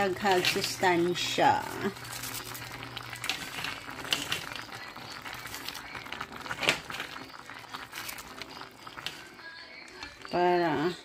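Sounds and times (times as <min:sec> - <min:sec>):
cabbage leaves crackling: 0:00.0 - 0:09.4.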